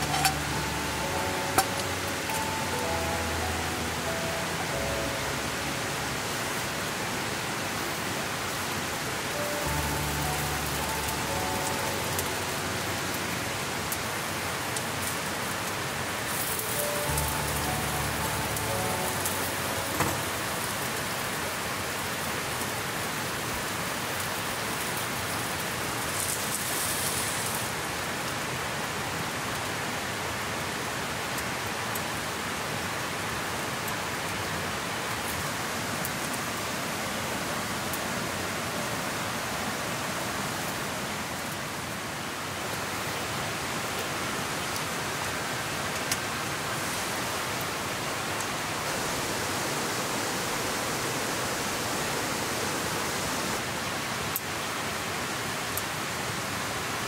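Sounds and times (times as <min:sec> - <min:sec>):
rain drop clicks: 0:00.0 - 0:04.3, 0:09.3 - 0:20.7
soft music notes: 0:00.0 - 0:21.5
steady rain hissing: 0:00.0 - 0:57.0.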